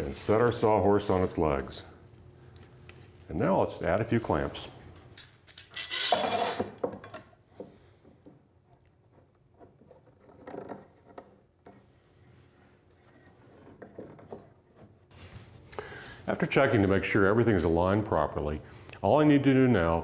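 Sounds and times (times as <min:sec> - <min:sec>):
metal clamps scraping on bars: 0:05.7 - 0:06.8.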